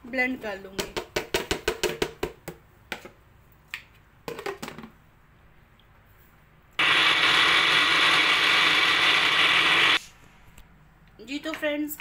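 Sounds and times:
blender running: 6.8s - 10.1s.

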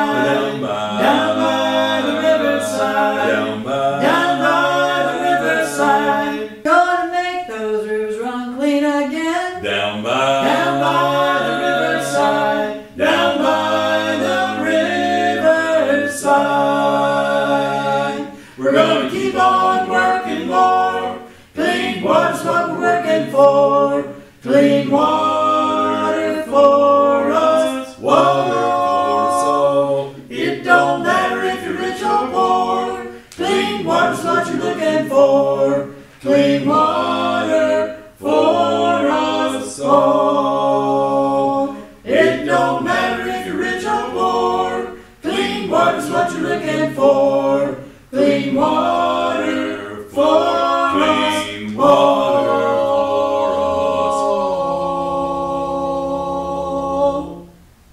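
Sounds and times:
group singing a cappella: 0.0s - 57.9s
singers breathing: 18.3s - 18.6s, 21.2s - 21.6s, 35.9s - 36.2s, 44.9s - 45.2s.

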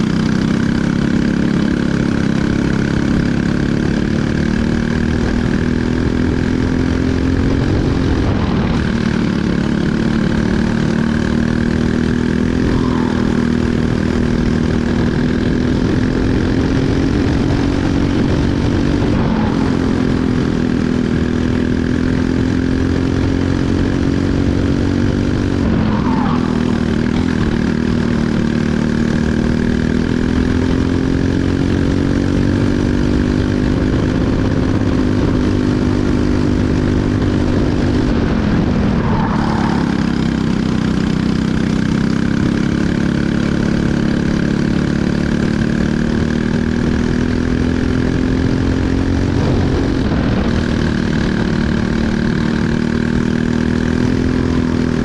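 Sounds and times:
kart engine racing: 0.0s - 55.0s.

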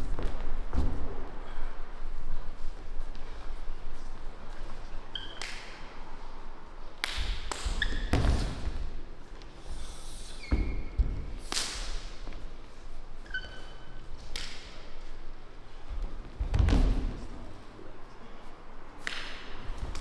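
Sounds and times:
short high squeaks: 5.1s - 5.5s, 13.2s - 14.1s.

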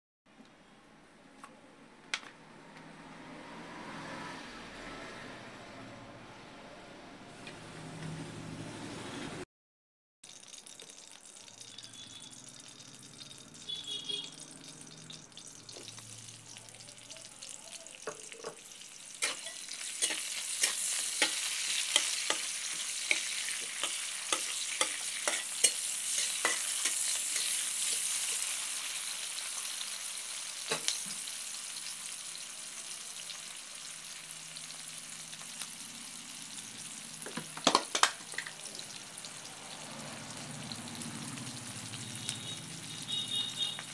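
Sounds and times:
onions sizzling in oil: 10.3s - 43.9s
spatula scraping a pot: 19.2s - 28.2s.

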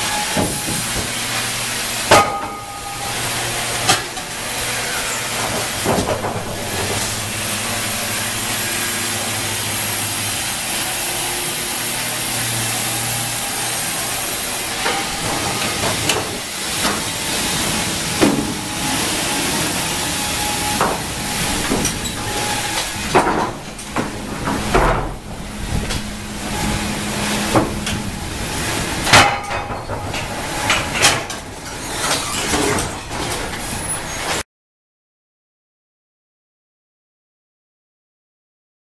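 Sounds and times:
machine hum with high hiss: 0.0s - 34.2s
knocks and clatter of timber: 5.4s - 7.2s, 20.8s - 26.1s.

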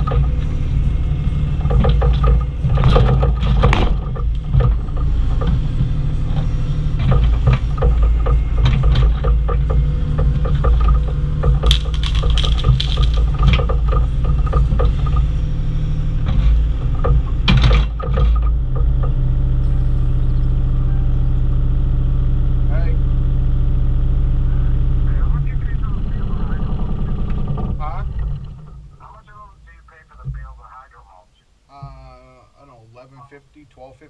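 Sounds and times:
excavator bucket clanking and scraping: 0.0s - 19.3s
excavator diesel engine running: 0.0s - 31.2s.

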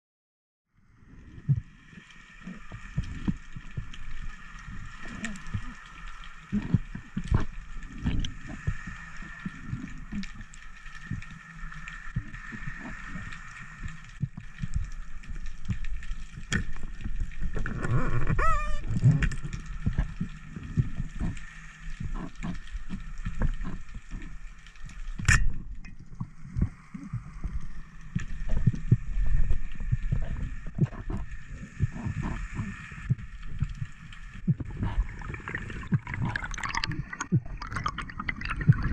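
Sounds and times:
underwater water movement: 0.8s - 38.9s.

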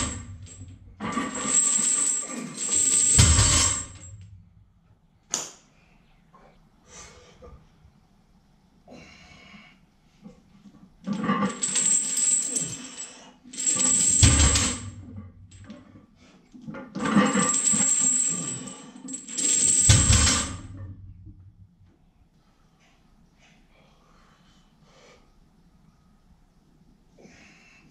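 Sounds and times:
metal gym equipment jangling: 0.0s - 4.3s, 11.1s - 16.0s, 16.7s - 21.0s.

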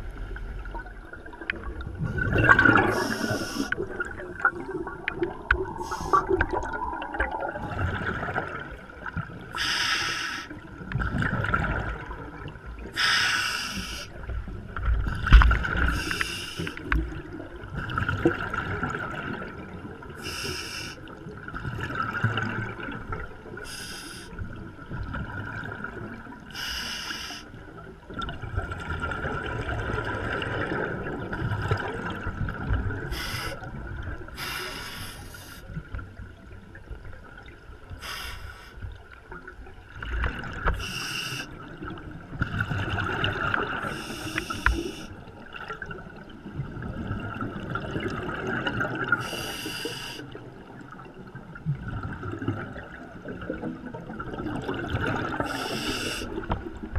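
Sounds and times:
underwater bubbling: 0.0s - 56.9s
regulator breathing hiss: 3.0s - 3.8s, 5.8s - 6.3s, 9.6s - 10.5s, 13.0s - 14.1s, 16.0s - 16.8s, 20.2s - 21.0s, 23.7s - 24.3s, 26.6s - 27.5s, 33.1s - 33.6s, 34.4s - 35.7s, 38.0s - 38.8s, 40.8s - 41.5s, 43.9s - 45.2s, 49.2s - 50.3s, 55.5s - 56.3s.

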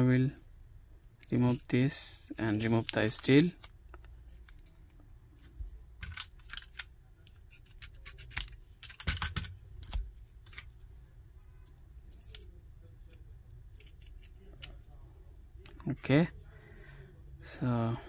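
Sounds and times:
faint low hum: 0.0s - 18.0s
plastic wrap crackling: 1.2s - 3.8s.

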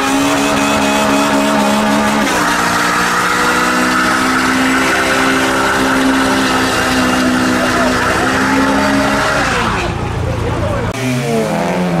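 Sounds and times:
car engine revving: 0.0s - 12.0s
tyres squealing: 2.2s - 10.1s.

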